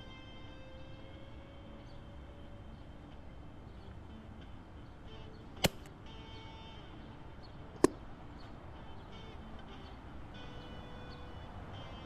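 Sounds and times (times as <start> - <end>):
faint background music: 0.0 - 12.0
air rifle firing: 5.6 - 5.9.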